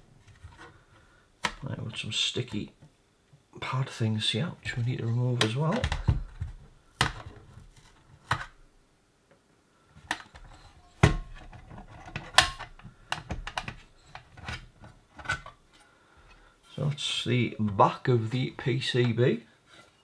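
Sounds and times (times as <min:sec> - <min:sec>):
clicks and knocks of handled radio case: 0:05.4 - 0:08.6, 0:10.0 - 0:15.6.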